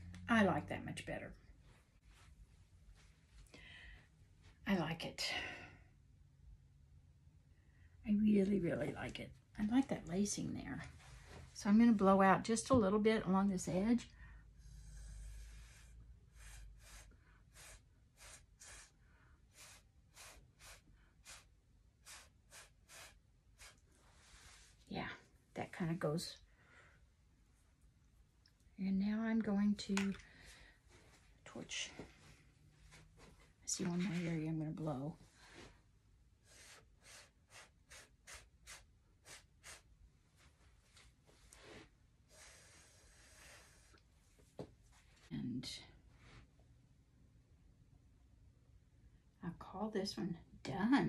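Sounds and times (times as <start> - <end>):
air puffs through a straw: 14.6 - 24.8, 36.4 - 40.0, 41.6 - 44.0.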